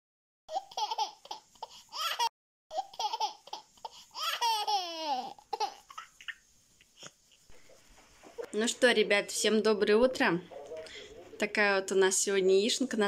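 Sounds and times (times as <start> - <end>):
baby laughing and squealing: 0.5 - 6.5.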